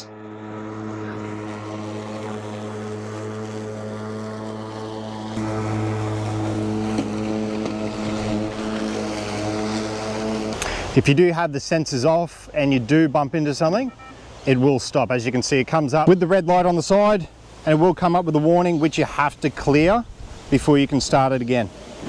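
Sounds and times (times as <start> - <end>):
electric lawn mower hum: 0.0 - 11.2.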